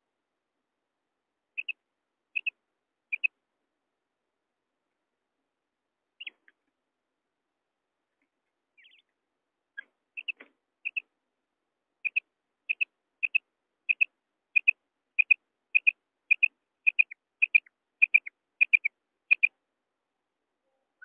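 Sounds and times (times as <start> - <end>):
quail calling: 1.6 - 1.8, 3.1 - 3.3, 6.2 - 6.4, 8.8 - 9.0, 9.8 - 11.0, 12.0 - 19.5.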